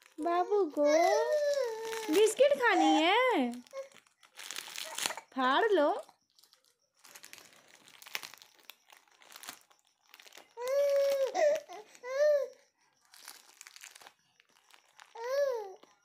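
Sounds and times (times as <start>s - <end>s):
plastic wrapper crinkling: 0.0s - 16.0s
baby vocal sounds: 0.8s - 3.9s.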